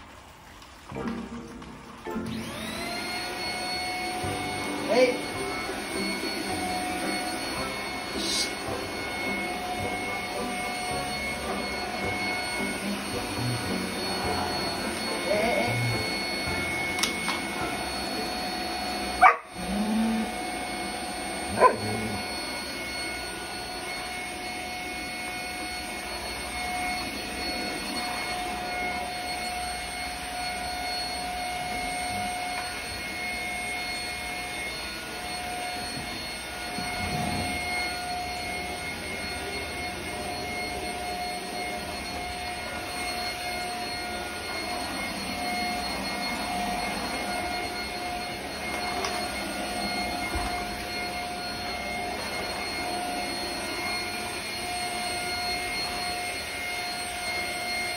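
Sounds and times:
vacuum cleaner whine: 0.0s - 57.9s
dog barking: 19.2s - 19.5s, 21.5s - 22.1s.

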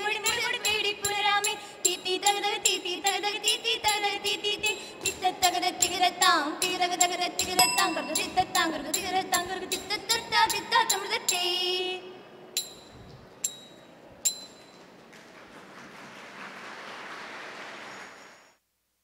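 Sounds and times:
women singing: 0.0s - 12.1s
metallic ringing strikes: 12.6s - 14.8s
audience applause: 15.1s - 18.5s.

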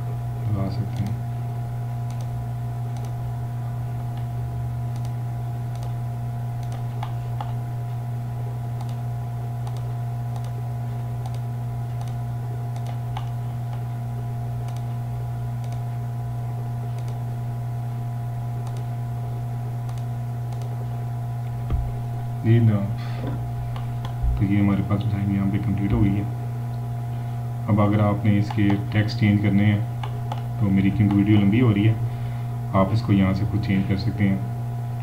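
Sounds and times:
low electrical hum: 0.0s - 35.0s
computer mouse clicking: 2.0s - 2.3s, 2.9s - 3.2s, 4.9s - 6.0s, 6.6s - 7.6s, 8.8s - 9.0s, 9.6s - 10.6s, 11.2s - 13.9s, 14.6s - 15.0s, 15.6s - 15.8s, 16.9s - 17.2s, 18.6s - 18.9s, 19.8s - 20.7s, 30.0s - 31.2s.

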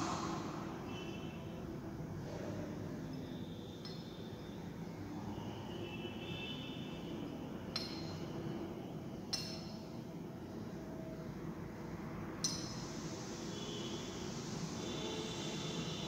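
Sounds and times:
low room noise: 0.0s - 16.0s.

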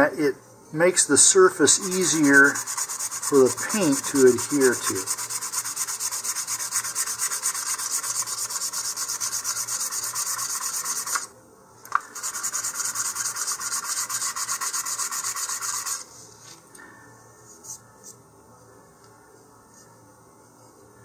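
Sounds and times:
sandpaper rubbing on plastic: 1.6s - 11.3s, 12.2s - 16.1s.

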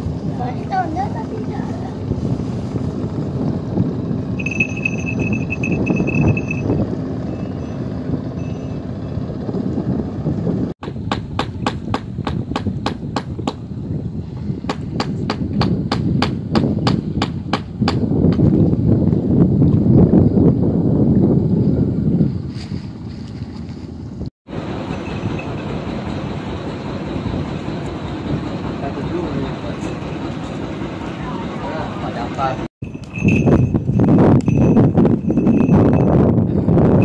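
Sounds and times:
motorboat passing: 0.0s - 10.7s, 24.5s - 32.6s
wind buffeting microphone: 0.0s - 37.0s
thin high tone: 4.4s - 9.0s, 24.6s - 27.9s.

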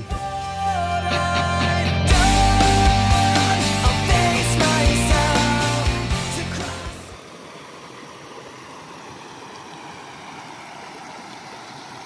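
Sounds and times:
rock music: 0.0s - 7.1s.

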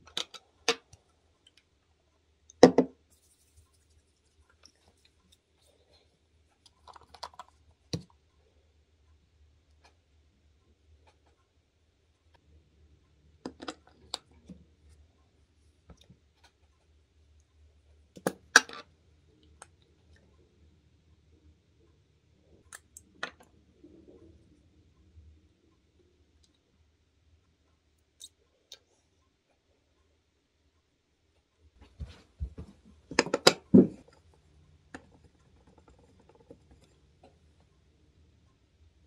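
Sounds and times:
soft rustling: 3.1s - 6.6s.

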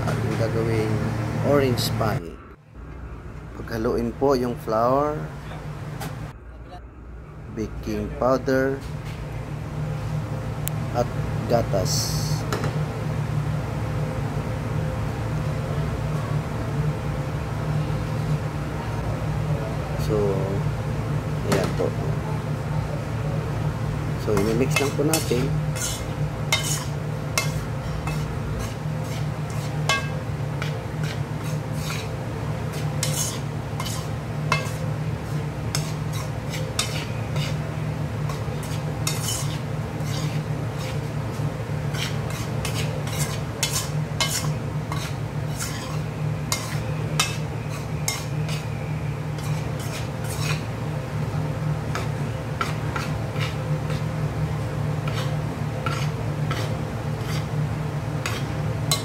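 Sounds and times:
steady low hum: 0.0s - 59.0s
metal spoon scraping flour in bowl: 24.3s - 37.7s, 38.3s - 41.2s, 41.9s - 48.8s, 49.4s - 50.7s, 51.9s - 54.1s, 55.0s - 57.5s, 58.2s - 59.0s.

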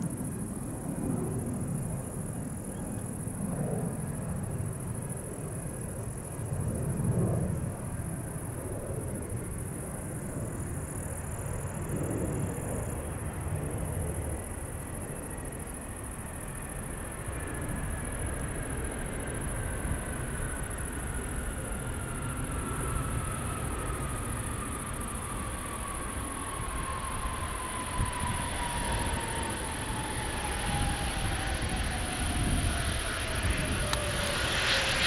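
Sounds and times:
jet engines rumbling: 0.0s - 35.0s
engine whine falling in pitch: 26.6s - 35.0s.

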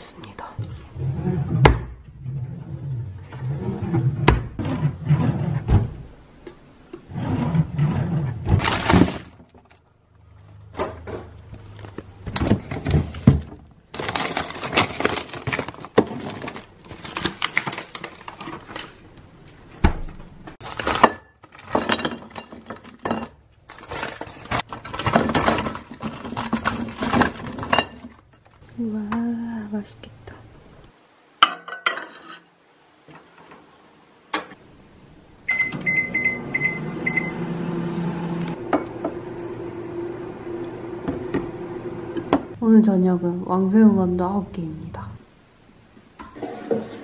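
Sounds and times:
drawers and cabinet doors banging shut: 1.4s - 2.0s, 3.8s - 6.1s, 7.3s - 9.6s, 12.2s - 17.8s, 19.8s - 28.2s
plastic packets rustling: 13.9s - 19.5s, 20.6s - 23.0s, 23.6s - 28.6s
dishes clinking: 31.4s - 32.4s.

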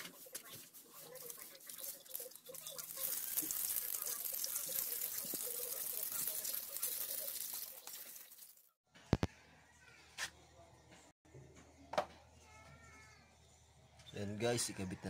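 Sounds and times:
hose water spraying and splattering: 0.1s - 8.7s.

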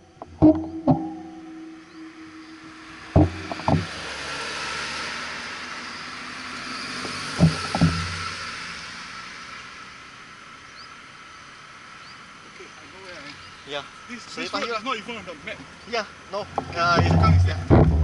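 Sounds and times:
car passing: 0.0s - 18.0s
dull knocks: 0.2s - 4.4s, 7.4s - 8.4s, 16.6s - 18.0s.

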